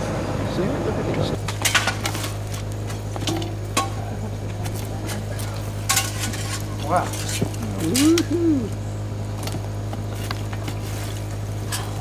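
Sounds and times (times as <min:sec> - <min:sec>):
steady low hum: 0:00.0 - 0:12.0
iron bar scraping charcoal: 0:01.4 - 0:08.4, 0:09.4 - 0:12.0.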